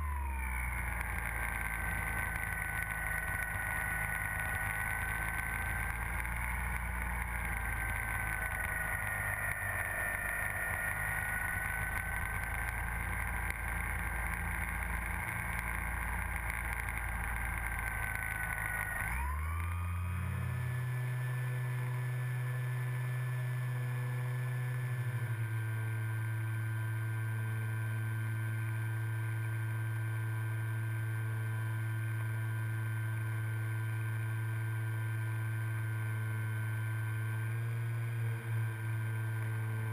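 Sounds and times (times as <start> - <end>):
electric motor whining: 0.0 - 25.7.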